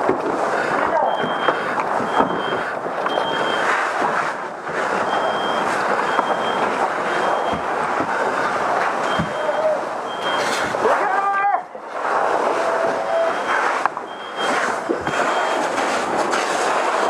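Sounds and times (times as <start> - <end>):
fire roaring: 0.0 - 17.0
smoke alarm beeping: 1.0 - 3.7, 5.0 - 8.4, 9.0 - 10.8, 12.9 - 15.8.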